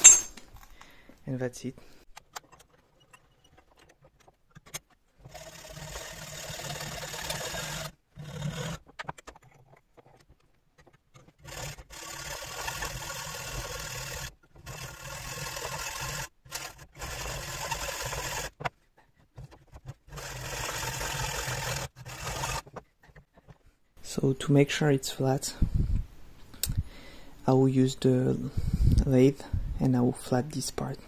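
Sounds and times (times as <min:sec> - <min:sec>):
hacksaw cutting metal: 0:00.0 - 0:00.4, 0:11.2 - 0:18.6, 0:19.5 - 0:23.6.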